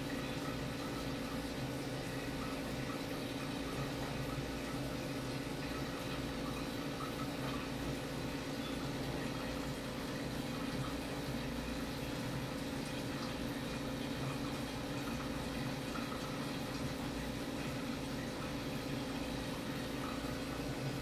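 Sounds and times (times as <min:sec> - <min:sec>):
water trickling in filter: 0:00.0 - 0:21.0.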